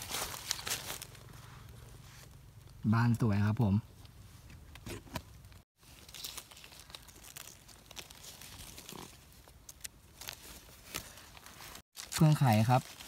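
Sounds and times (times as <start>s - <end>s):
dry leaves rustling: 0.0s - 2.8s, 5.8s - 13.0s.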